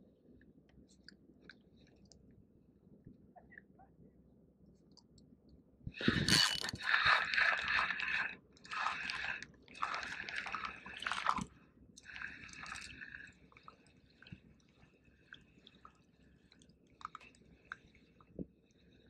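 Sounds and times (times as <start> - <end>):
fishing reel gears whirring: 6.0 - 10.4.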